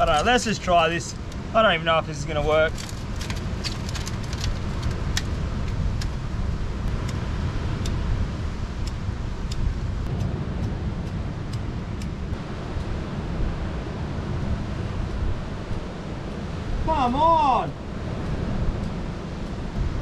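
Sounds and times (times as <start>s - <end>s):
wind buffeting microphone: 0.0s - 20.0s
sharp ticks: 8.8s - 13.0s
heavy rain: 9.8s - 20.0s.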